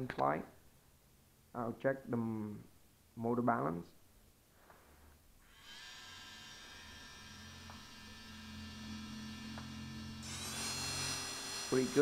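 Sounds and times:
electric motor whine: 5.5s - 12.0s.

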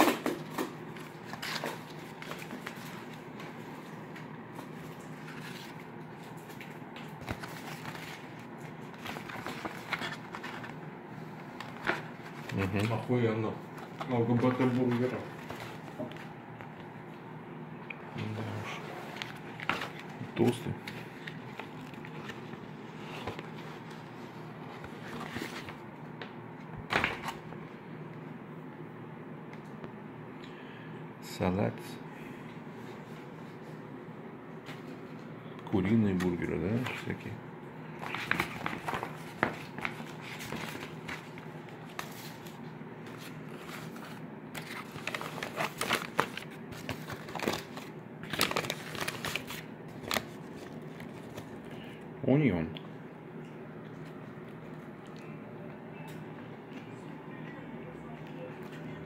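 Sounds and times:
room noise: 0.0s - 59.0s
foil paper wrapper crinkling: 11.6s - 13.2s, 38.0s - 51.7s.

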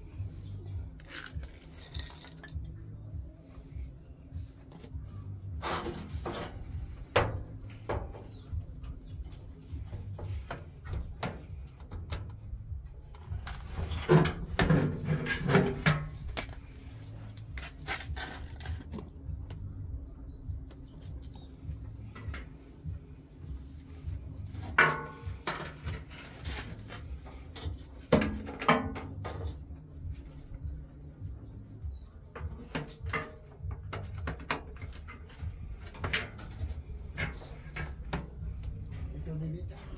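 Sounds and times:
low steady rumble: 0.0s - 39.9s
sheet metal panel clanking: 24.7s - 26.4s.

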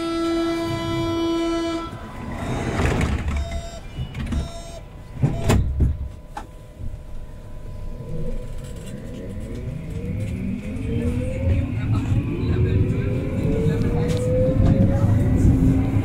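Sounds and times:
electronic warning tone: 2.0s - 5.8s
sliding doors shutting: 2.2s - 6.0s.

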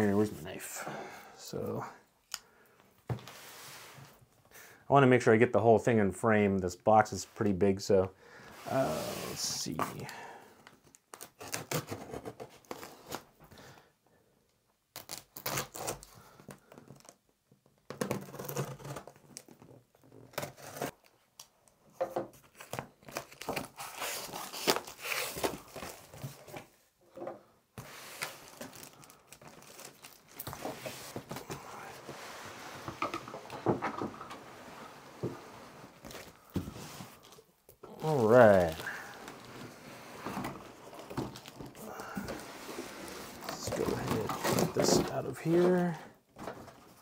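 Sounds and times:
cardboard and plastic wrap rustling: 27.8s - 47.0s.

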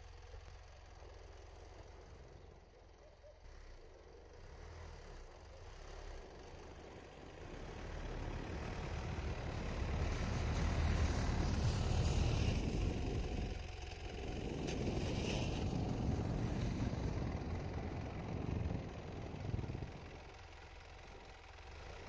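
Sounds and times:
diesel engine running: 0.0s - 22.0s
tyres pushing through snow: 4.5s - 22.0s.

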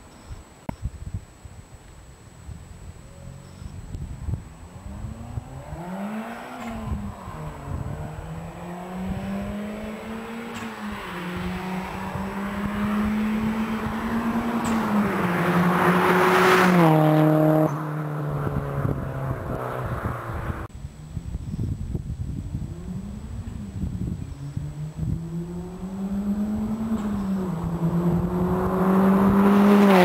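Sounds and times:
car engine accelerating past: 4.5s - 20.7s, 22.6s - 30.0s.

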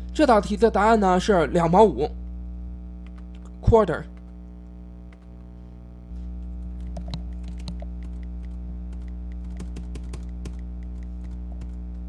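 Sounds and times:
low electrical hum: 0.0s - 12.0s
computer mouse clicking and tapping: 6.8s - 11.8s.

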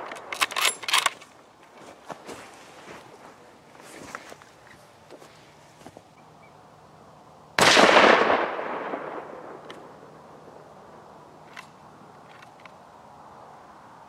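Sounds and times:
rifle shot: 7.6s - 9.9s.

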